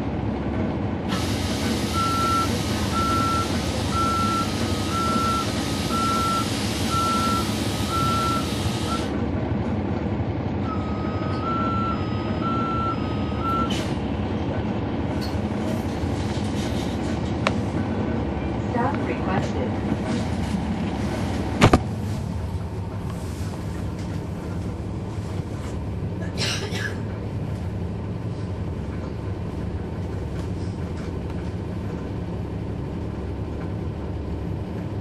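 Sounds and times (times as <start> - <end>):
diesel bus engine rumbling: 0.0 - 35.0
two-tone warning alarm beeps: 1.8 - 9.1, 10.6 - 13.7.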